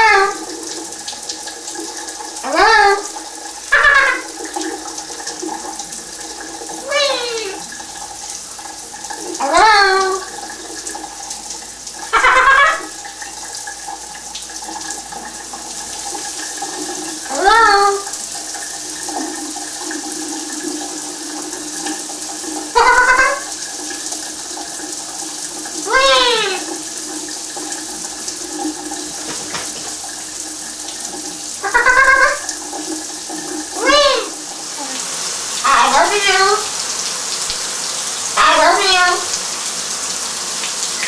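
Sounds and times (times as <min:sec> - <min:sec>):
parrot calling: 0:00.0 - 0:00.5, 0:02.4 - 0:04.4, 0:06.8 - 0:07.7, 0:09.4 - 0:10.3, 0:12.1 - 0:13.0, 0:17.3 - 0:18.2, 0:22.7 - 0:23.6, 0:25.8 - 0:26.7, 0:31.6 - 0:32.6, 0:33.8 - 0:36.7, 0:38.4 - 0:39.3
shower water running: 0:00.0 - 0:41.0.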